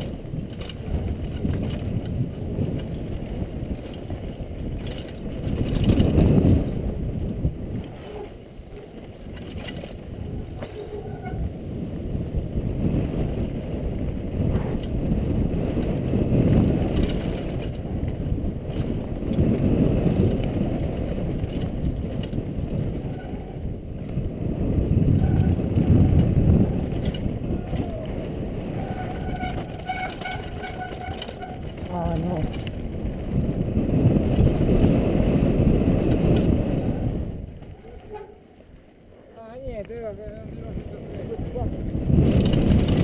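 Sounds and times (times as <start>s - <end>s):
bike clattering: 0.0s - 24.2s, 24.9s - 35.0s.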